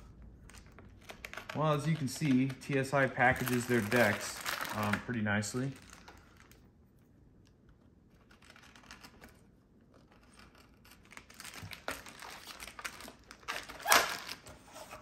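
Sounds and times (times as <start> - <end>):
plastic bag crinkling: 0.5 - 6.7.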